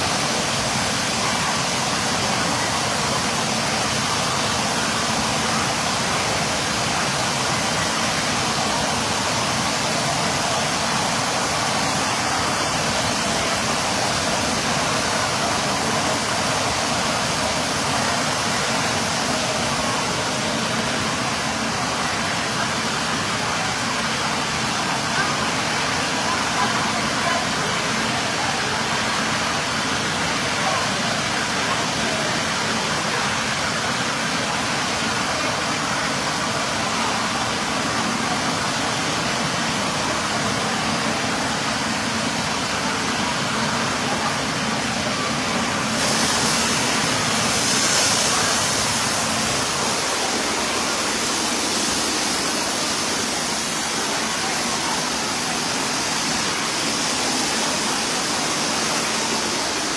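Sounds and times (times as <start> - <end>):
water pouring and splashing: 31.2 - 59.9.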